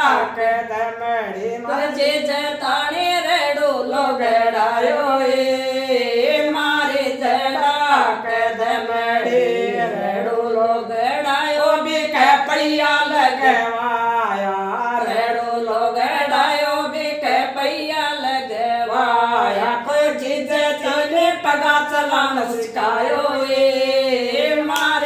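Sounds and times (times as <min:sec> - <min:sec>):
women singing unaccompanied: 0:00.0 - 0:25.0.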